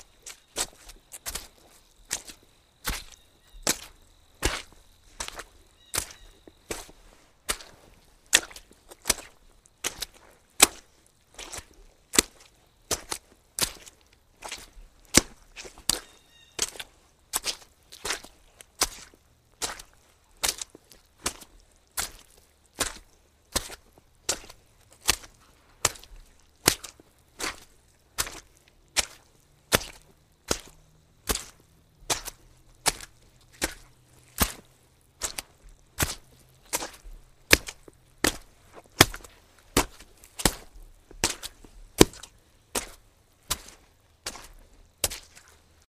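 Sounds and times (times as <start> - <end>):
wet footsteps walking: 0.0 - 45.9.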